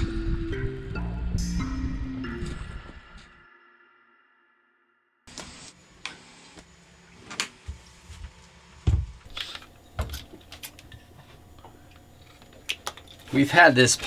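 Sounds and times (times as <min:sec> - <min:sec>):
faint steady hum: 0:05.7 - 0:14.0.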